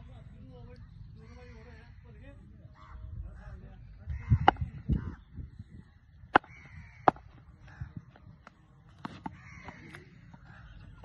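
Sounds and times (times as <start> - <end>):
crows cawing: 1.2 - 2.0, 2.7 - 3.1, 4.1 - 5.2, 6.4 - 8.0, 9.3 - 10.8
bat tapped on concrete: 4.4 - 4.8, 6.3 - 7.4.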